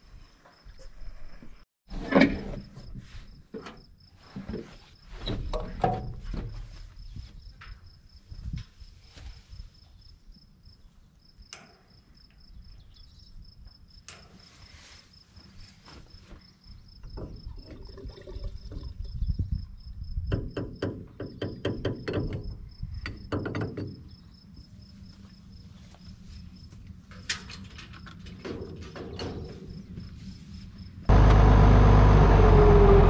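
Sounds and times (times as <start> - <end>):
insect chirping: 6.7 - 28.7
knocks and clatter: 20.3 - 24.0.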